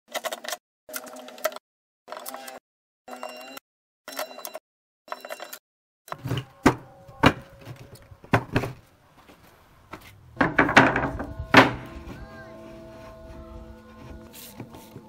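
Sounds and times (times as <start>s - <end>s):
board knocking on wooden table: 10.4s - 11.8s.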